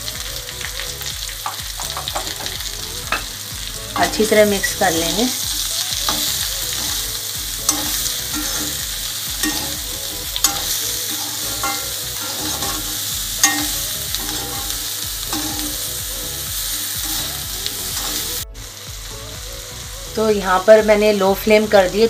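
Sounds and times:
vegetables sizzling in oil: 0.0 - 22.0
spatula scraping pan: 4.0 - 16.1
spatula clinking on pan: 7.7 - 15.8.

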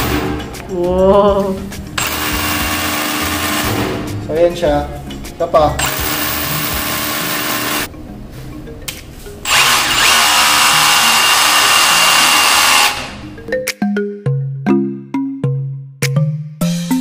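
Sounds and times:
rotary hammer drilling into concrete: 2.0 - 3.7, 5.8 - 7.9, 9.4 - 13.2.

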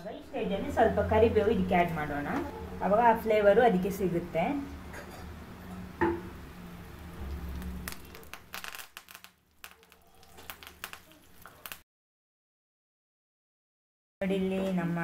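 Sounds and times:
food deep-frying in hot oil: 3.8 - 11.8
curry leaves crackling in oil: 6.3 - 11.8.

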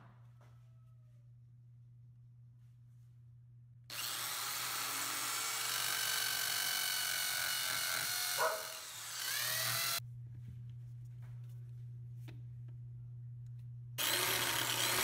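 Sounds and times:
electric drill boring into tile: 3.9 - 10.0, 14.0 - 15.0.

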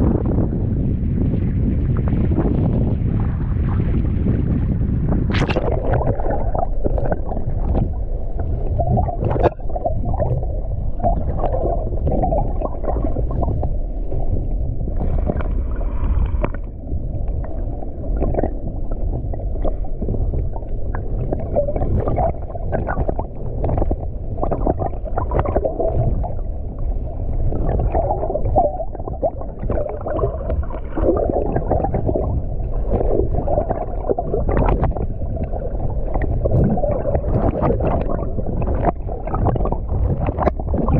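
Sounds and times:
muffled underwater churning water: 0.0 - 40.9
sharp underwater clicks: 5.3 - 7.9.

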